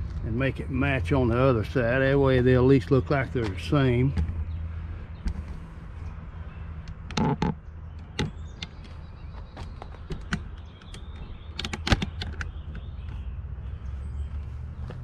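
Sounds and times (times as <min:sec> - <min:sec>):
handling clicks and taps: 0:03.2 - 0:04.4, 0:06.8 - 0:13.2.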